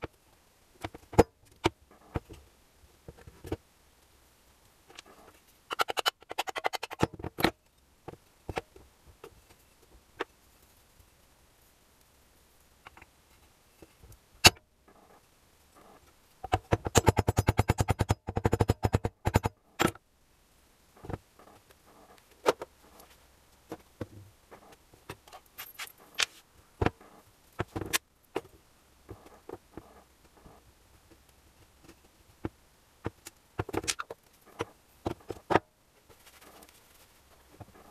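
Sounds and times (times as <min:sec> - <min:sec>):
metal parts clinking: 0:25.3 - 0:26.3.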